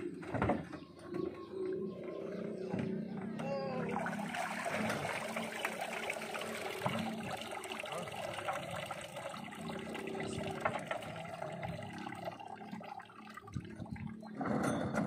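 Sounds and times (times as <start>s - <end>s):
water trickling and splashing: 3.5s - 14.4s.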